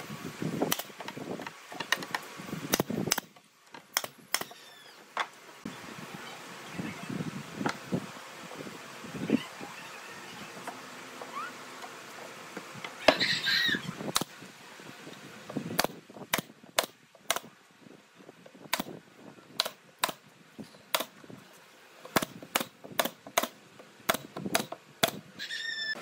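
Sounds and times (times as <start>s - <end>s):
nail gun firing: 0.7s - 0.9s, 2.7s - 3.3s, 3.9s - 4.6s, 15.8s - 17.5s, 19.6s - 20.2s, 20.9s - 21.1s, 22.1s - 25.2s.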